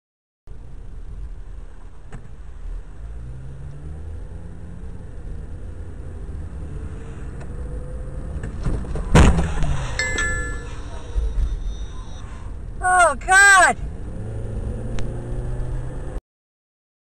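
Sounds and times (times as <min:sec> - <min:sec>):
car engine accelerating: 0:02.3 - 0:12.8, 0:13.8 - 0:16.2
short electronic beeps: 0:10.0 - 0:12.5.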